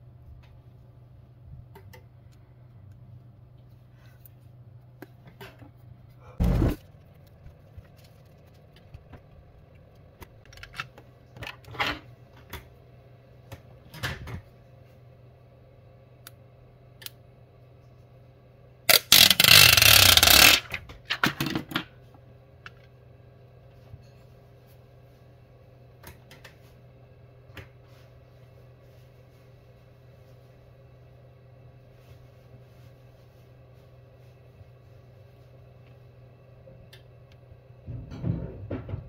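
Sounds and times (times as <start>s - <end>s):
steady low hum: 0.0s - 20.8s
crackles: 6.3s - 10.5s
loud ripping rasping noise: 18.9s - 20.6s.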